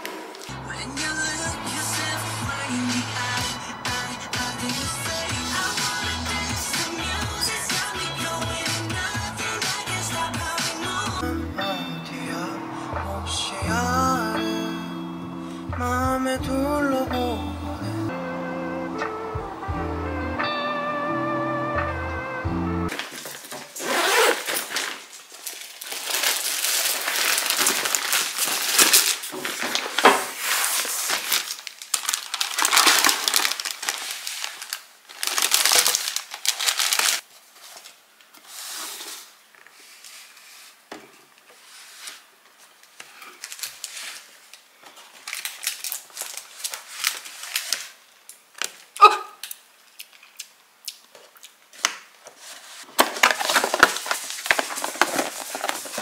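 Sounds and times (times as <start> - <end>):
plastic wrap crinkling: 22.9 - 50.4, 51.0 - 56.0
handling cardboard box: 52.4 - 56.0.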